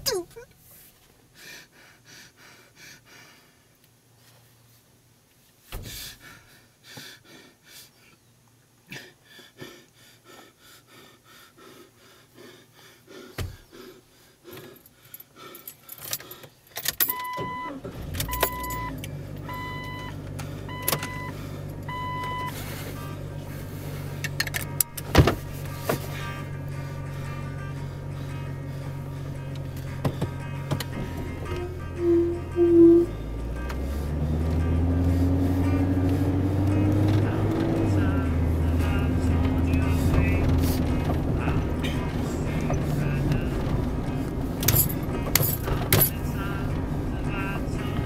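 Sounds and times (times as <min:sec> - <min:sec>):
car keys jingling: 0:14.5 - 0:48.0
car engine starting and idling: 0:16.1 - 0:48.0
dashboard warning chime: 0:17.0 - 0:40.6.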